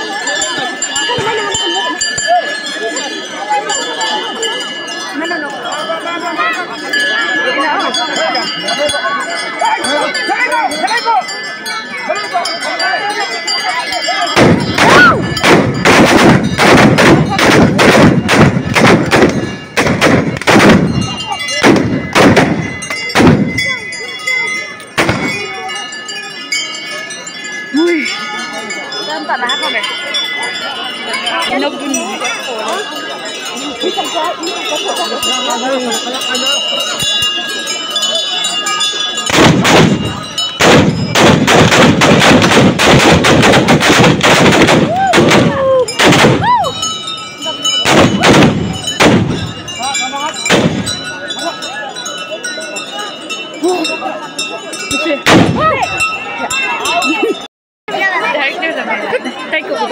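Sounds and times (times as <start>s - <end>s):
black powder gunshots: 14.4s - 23.6s, 25.0s - 25.4s, 39.3s - 46.4s, 47.8s - 49.5s, 50.5s - 51.0s, 55.3s - 55.6s.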